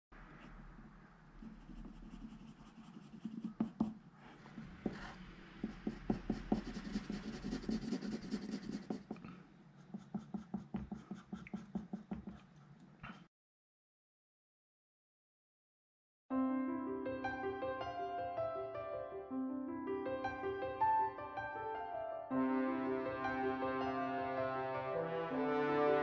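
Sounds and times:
pencil shading on paper: 1.4 - 12.5.

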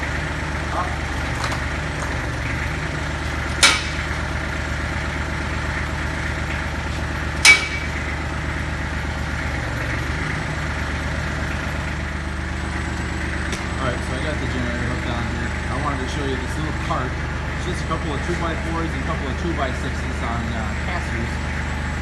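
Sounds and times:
diesel tractor engine idling: 0.0 - 22.0
sharp metal clanks: 3.5 - 4.2, 7.4 - 8.2.

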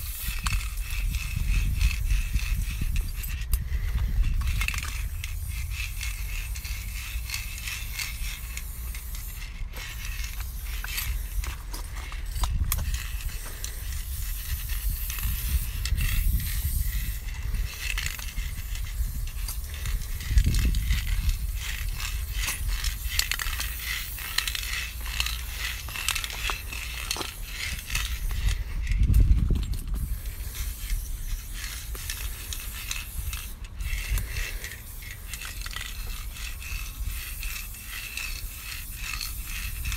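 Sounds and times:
spray paint can hissing: 0.0 - 39.9.

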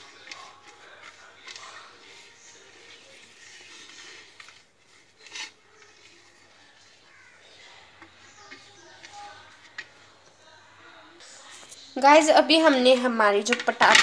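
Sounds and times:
fingers rubbing a plate: 0.0 - 6.9.

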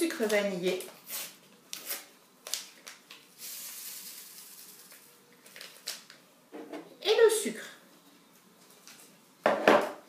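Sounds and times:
paper sachet rustling and crackling: 0.1 - 6.2
sugar pouring hiss: 3.3 - 5.2.

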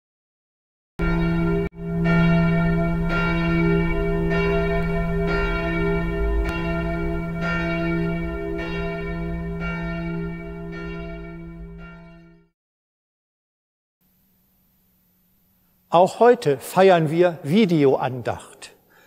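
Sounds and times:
church bells pealing: 1.0 - 12.5.

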